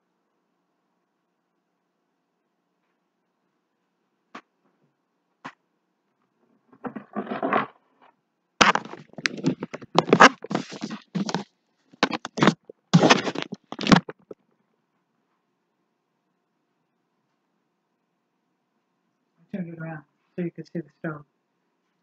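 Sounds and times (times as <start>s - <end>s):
camera handling noise: 8.6s - 11.4s, 12.0s - 14.4s.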